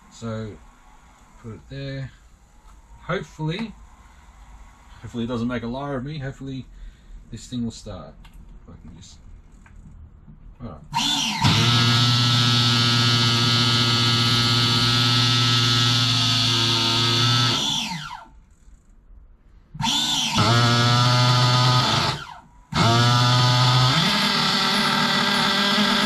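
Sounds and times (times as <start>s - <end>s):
electric starter motor whine: 10.9s - 18.4s, 19.7s - 26.0s.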